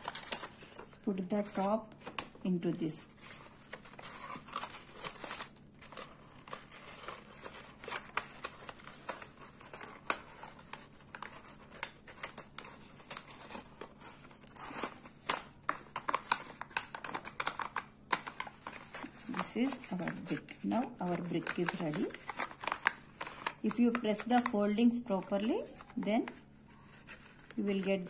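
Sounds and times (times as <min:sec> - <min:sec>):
paper crinkling and rustling: 0:00.0 - 0:28.0.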